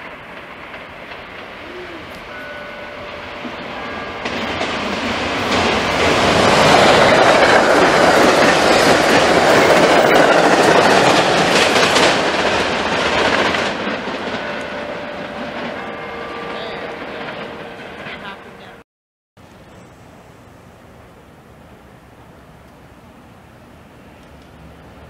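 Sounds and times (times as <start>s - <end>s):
wheels clacking over rail joints: 0.0s - 18.7s
train rushing past: 0.0s - 18.8s.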